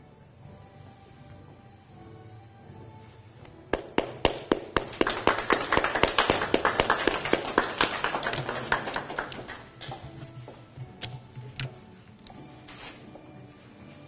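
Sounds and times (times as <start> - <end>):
soft background music: 0.0 - 14.0
audience applauding: 3.7 - 10.1.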